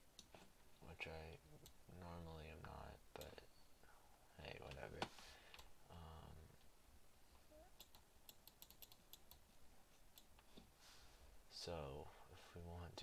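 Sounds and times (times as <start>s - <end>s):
computer keys clicking: 7.8s - 9.4s.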